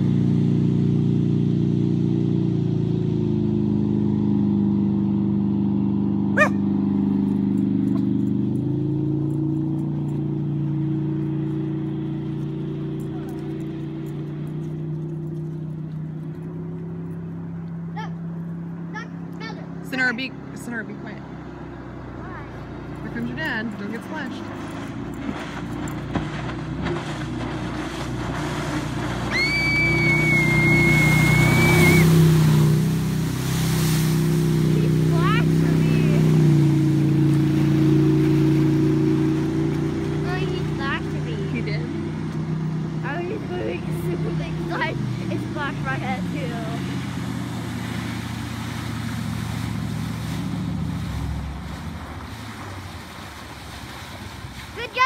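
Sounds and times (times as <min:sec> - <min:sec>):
boat engine passing by: 0:00.0 - 0:55.0
rush of jet spray: 0:27.9 - 0:36.4.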